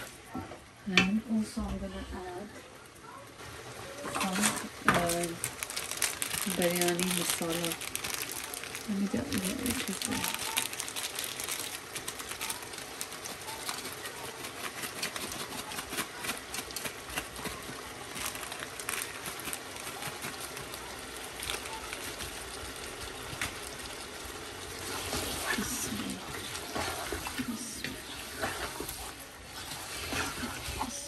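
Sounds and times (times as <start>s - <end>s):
chicken frying in hot oil: 0.0s - 31.0s.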